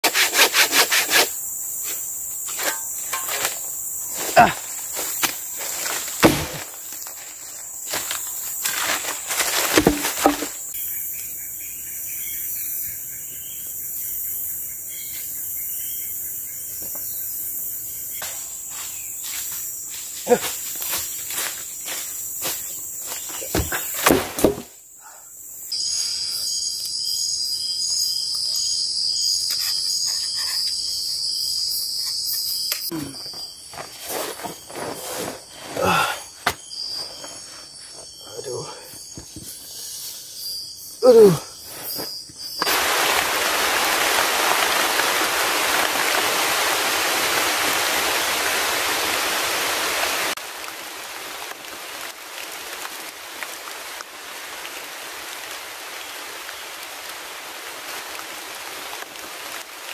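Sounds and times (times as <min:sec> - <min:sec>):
hand saw strokes: 0:00.0 - 0:03.6
crickets chirping: 0:00.0 - 0:59.9
insects buzzing: 0:00.0 - 0:59.9
knocks and rustles in leaves: 0:01.8 - 0:10.7, 0:18.2 - 0:24.8, 0:41.8 - 0:59.9.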